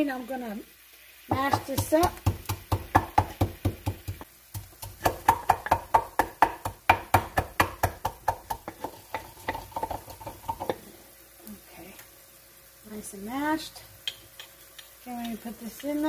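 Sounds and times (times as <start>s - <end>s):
pestle pounding in a mortar: 1.3s - 10.7s.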